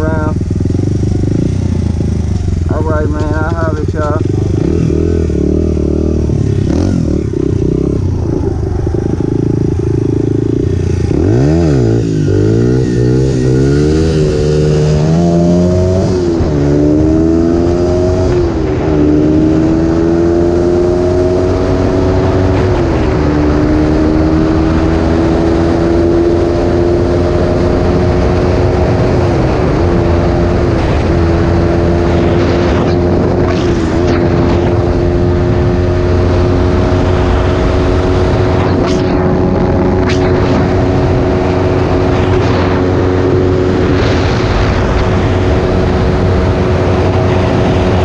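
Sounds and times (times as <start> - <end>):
dirt bike engine accelerating: 0.0 - 48.0.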